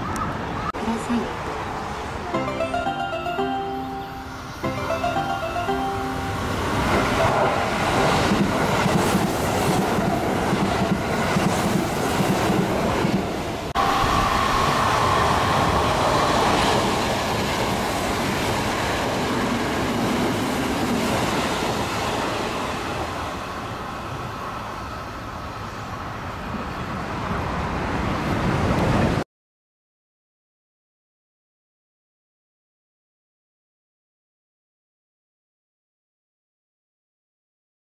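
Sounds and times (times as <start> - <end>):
train whine: 1.6 - 29.2
train wheels rumbling and clattering: 6.9 - 24.6.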